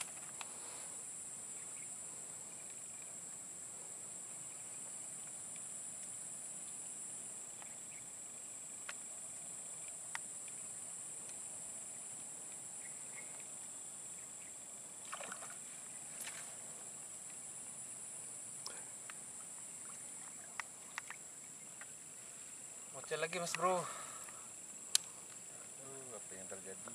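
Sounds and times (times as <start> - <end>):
insects droning: 0.0 - 26.9
fish splashing at lure: 15.0 - 15.6.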